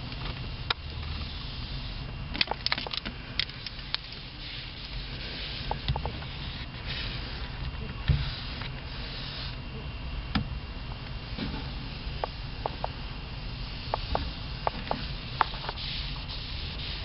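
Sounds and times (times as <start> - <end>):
steady low rumble: 0.0 - 17.0
duster wiping dashboard: 3.8 - 9.6, 11.2 - 17.0.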